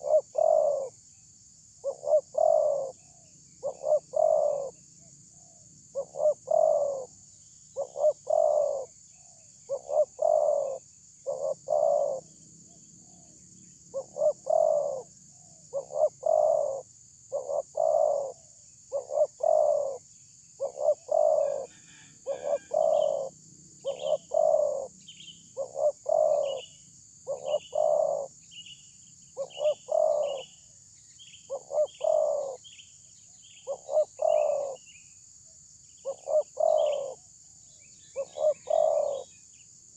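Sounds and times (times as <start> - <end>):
dove cooing: 0.0 - 1.0, 1.8 - 4.8, 5.4 - 7.1, 7.8 - 20.0, 20.6 - 24.9, 25.5 - 28.4, 29.4 - 30.6, 31.5 - 32.7, 33.6 - 34.8, 36.0 - 37.3, 38.2 - 39.3
small bird chirping: 0.0 - 35.2, 35.8 - 39.8
high insect hiss: 0.0 - 39.9.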